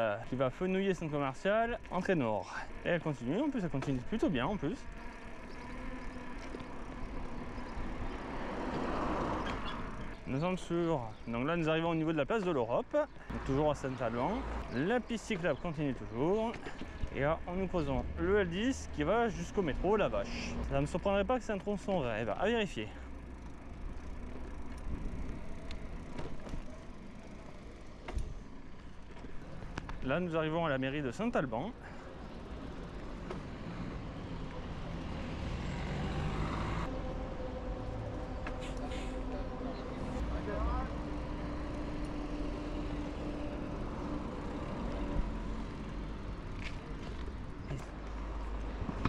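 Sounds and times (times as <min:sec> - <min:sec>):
bicycle tyres rolling on pavement: 0:00.0 - 0:49.0
motor vehicle engine humming: 0:00.0 - 0:49.0
bike clicks and knocks: 0:23.4 - 0:30.1, 0:46.5 - 0:49.0.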